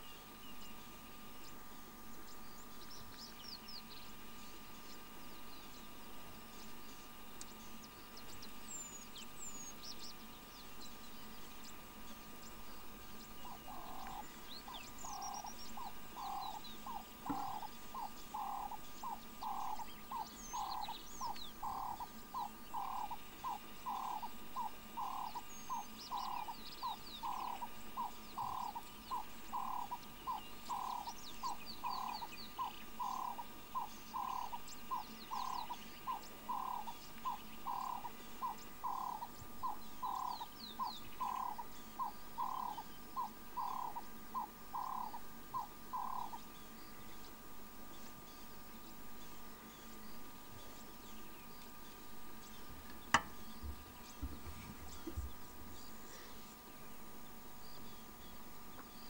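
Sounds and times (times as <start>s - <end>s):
animal call of repeated short notes: 15.0s - 26.5s.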